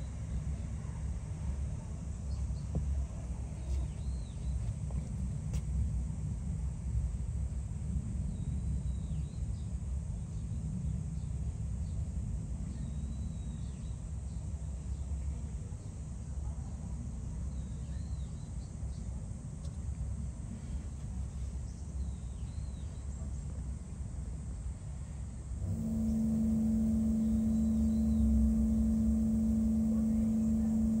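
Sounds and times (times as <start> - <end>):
low outdoor rumble: 25.6 - 31.0.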